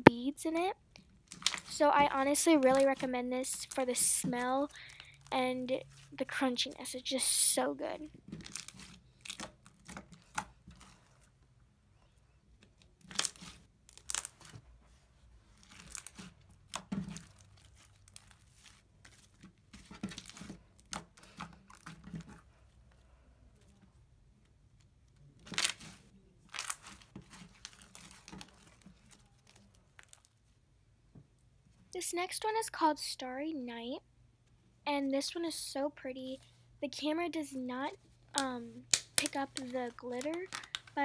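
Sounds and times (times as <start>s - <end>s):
crunchy slime crackling and popping: 0.9s - 5.4s, 8.3s - 10.9s, 12.8s - 14.6s, 15.5s - 19.5s, 25.4s - 30.4s, 38.4s - 41.0s.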